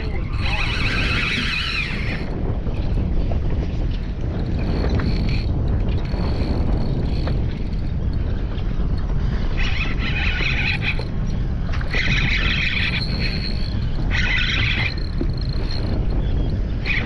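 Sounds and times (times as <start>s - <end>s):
boat noise: 0.0s - 17.0s
wind: 0.0s - 17.0s.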